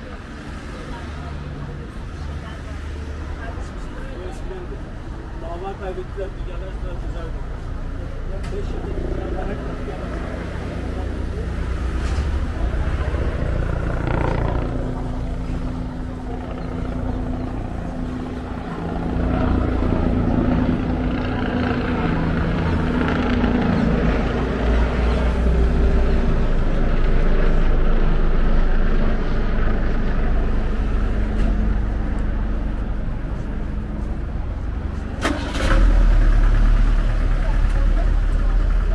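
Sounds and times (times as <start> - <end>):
passing vehicle engines rumbling: 0.0 - 38.9.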